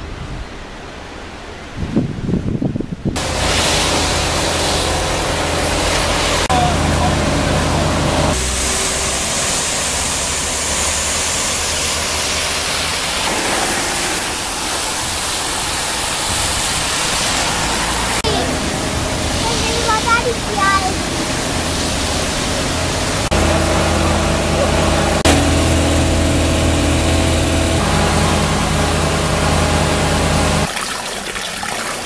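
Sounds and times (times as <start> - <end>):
wind buffeting microphone: 1.6 - 3.5
water jet rushing hiss: 3.2 - 32.0
low steady hum: 20.3 - 30.7.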